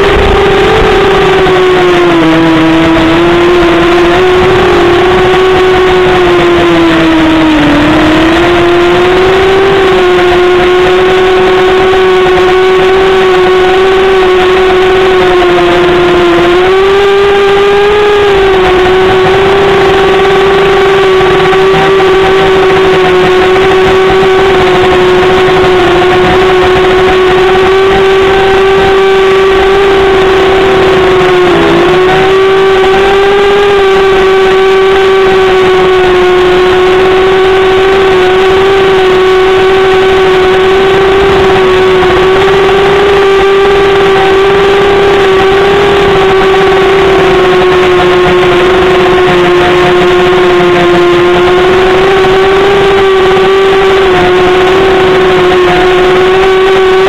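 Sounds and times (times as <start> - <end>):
drone motors whining: 0.0 - 57.0.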